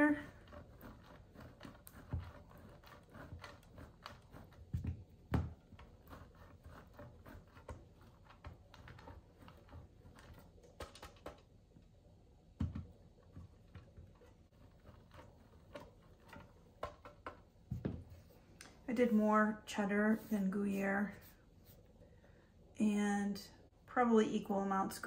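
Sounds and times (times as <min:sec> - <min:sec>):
cheese scraping on grater: 0:00.0 - 0:04.9, 0:05.6 - 0:10.6, 0:14.2 - 0:17.3.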